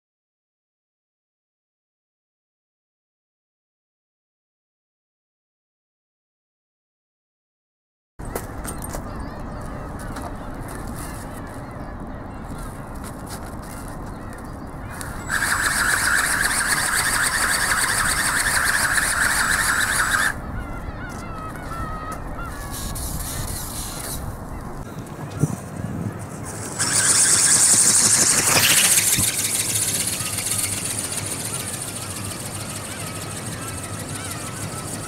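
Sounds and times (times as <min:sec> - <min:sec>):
wind noise: 0:08.5 - 0:31.2
electric motor whirring: 0:15.0 - 0:20.4, 0:26.2 - 0:35.0.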